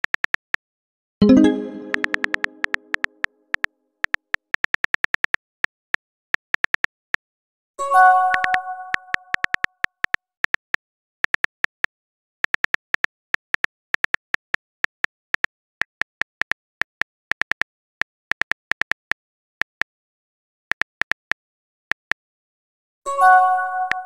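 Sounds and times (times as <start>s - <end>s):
message chime: 1.2s - 2.9s
smartphone keyboard typing clicks: 1.4s - 5.8s, 8.3s - 15.5s.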